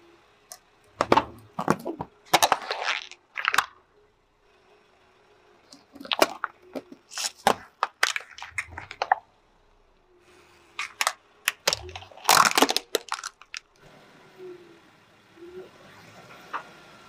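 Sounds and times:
plastic cracking under car tyre: 1.0s - 3.8s, 5.7s - 9.3s, 10.8s - 13.8s.

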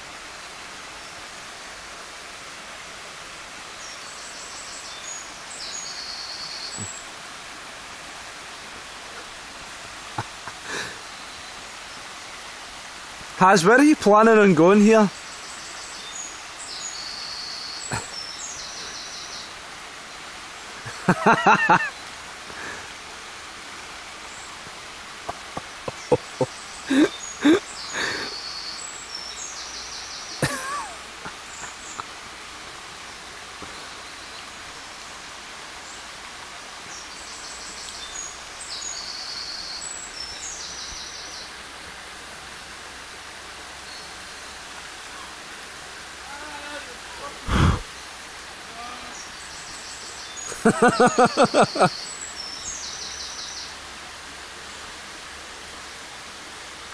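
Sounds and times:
stream running over stones: 0.0s - 56.9s
songbird singing: 3.7s - 7.3s, 10.0s - 12.6s, 13.3s - 22.3s, 24.0s - 32.2s, 32.9s - 36.2s, 36.8s - 41.8s, 43.7s - 54.0s
loud bird call: 50.4s - 52.0s.

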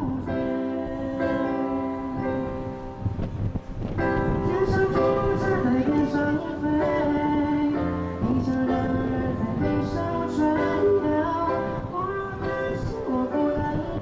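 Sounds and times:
man singing into microphone: 0.0s - 2.8s, 4.2s - 14.0s
keyboard and band accompaniment: 0.0s - 14.0s.

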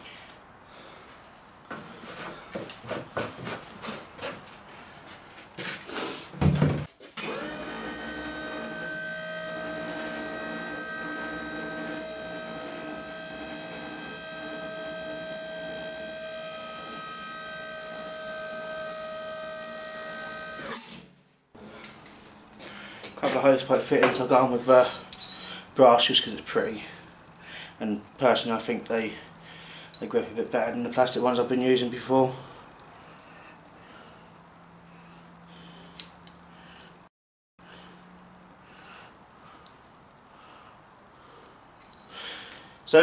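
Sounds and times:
electric lift motor running: 7.2s - 21.2s.

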